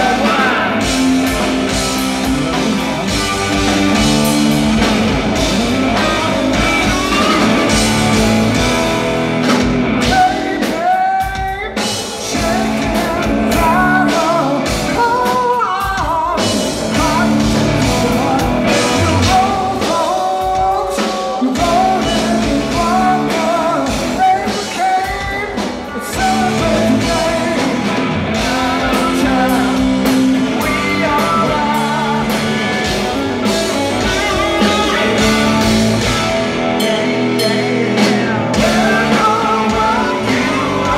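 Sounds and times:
male lead vocal: 0.0 - 9.0, 9.9 - 40.9
electric bass: 0.0 - 10.3, 12.3 - 15.2, 16.4 - 19.8, 26.2 - 40.9
drum kit: 0.0 - 40.9
electric guitar: 0.0 - 40.9.

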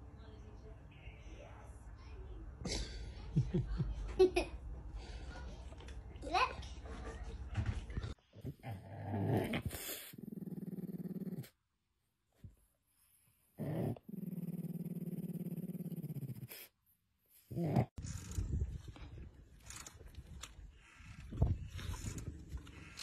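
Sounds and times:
dog growling: 8.4 - 11.6, 13.6 - 16.7, 17.4 - 18.0.

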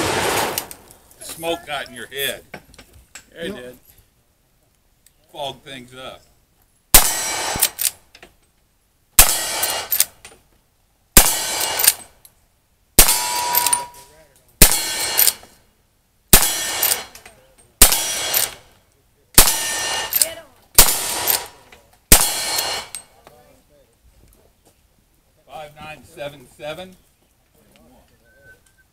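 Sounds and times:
rifle shots: 0.0 - 0.9, 6.9 - 8.0, 9.2 - 10.2, 11.2 - 12.1, 13.0 - 14.0, 14.6 - 15.4, 16.3 - 17.2, 17.8 - 18.7, 19.4 - 23.0
sharp metallic clanks: 13.0 - 15.5, 16.4 - 18.7, 19.4 - 23.1.

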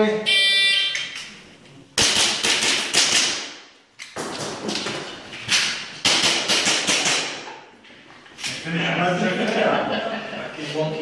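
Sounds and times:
airsoft pistol shots: 2.0 - 3.7.

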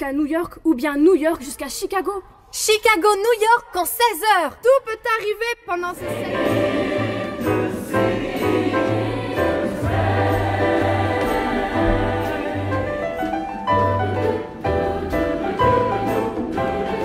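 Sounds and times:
choir singing: 5.9 - 17.0.

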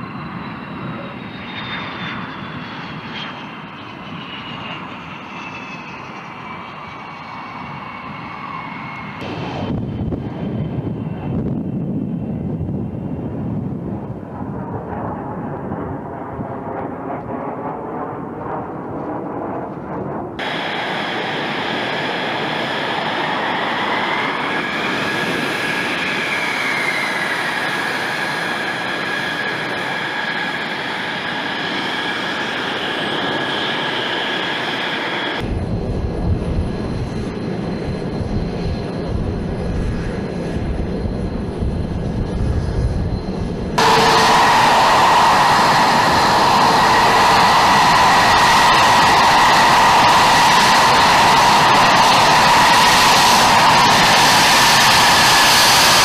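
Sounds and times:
high-pitched jet engine whine: 0.0 - 56.0
jet takeoff rumble: 0.0 - 56.0
deep heavy engine rumble: 35.4 - 55.8.

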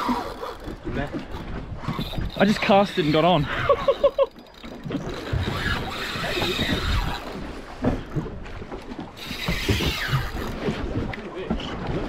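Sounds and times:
fishing reel drag ratcheting: 0.0 - 7.6, 9.2 - 10.6.

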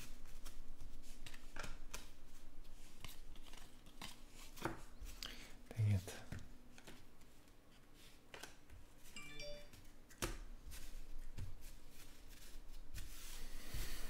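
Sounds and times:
trading cards handled: 1.1 - 5.2
faint chime-like tone: 9.2 - 9.8.

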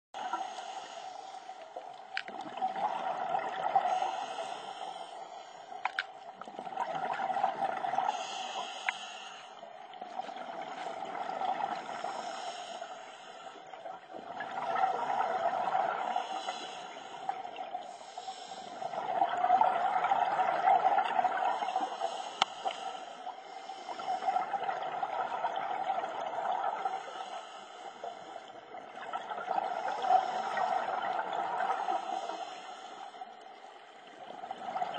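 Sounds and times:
diver breathing through regulator: 0.2 - 1.6, 3.8 - 6.0, 8.1 - 9.7, 11.8 - 13.7, 15.0 - 19.0, 21.5 - 24.6, 31.7 - 33.3
bubbles rising underwater: 1.8 - 4.6, 5.9 - 8.2, 9.8 - 12.4, 13.7 - 16.6, 17.3 - 22.2, 23.9 - 27.1, 28.3 - 32.6, 33.9 - 34.9.

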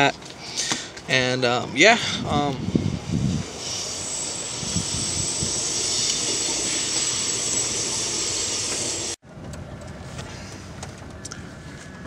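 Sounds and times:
hiss of rushing air: 1.8 - 9.2.

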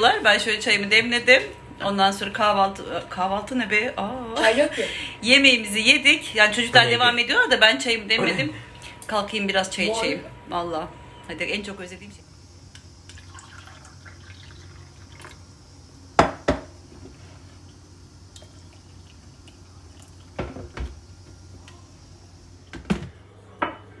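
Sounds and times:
tea pouring into glass cup: 13.0 - 15.4, 18.3 - 20.4
trickle of liquid: 13.0 - 15.6, 17.6 - 20.4
glass clinking on stone countertop: 23.6 - 23.9.

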